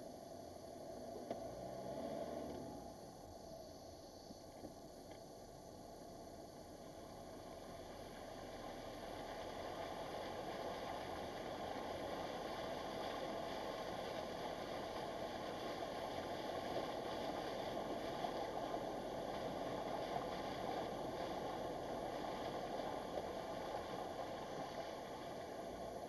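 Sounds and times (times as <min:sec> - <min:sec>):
tyres splashing through floodwater: 0:07.4 - 0:26.0.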